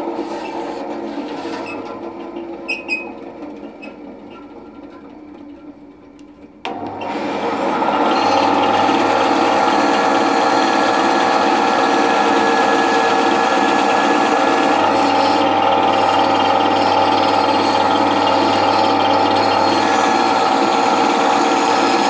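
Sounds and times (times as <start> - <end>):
bandsaw cutting wood: 6.7 - 22.0.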